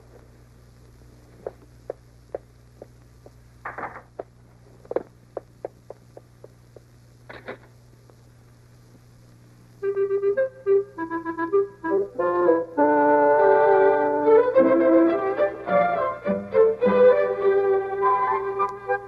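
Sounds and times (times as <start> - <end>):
faint steady hum: 0.0 - 19.0
light footsteps tapping: 1.4 - 6.9
scuffing noise: 1.4 - 7.6.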